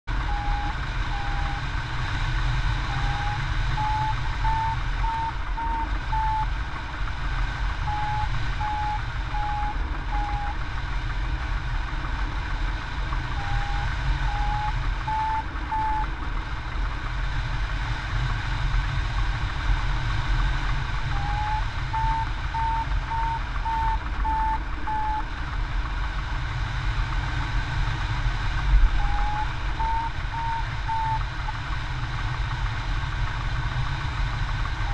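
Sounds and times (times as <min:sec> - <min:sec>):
variometer beeping short tones: 0:00.1 - 0:01.7, 0:02.8 - 0:06.5, 0:07.8 - 0:10.6, 0:13.3 - 0:16.2, 0:21.1 - 0:25.3, 0:29.0 - 0:31.6.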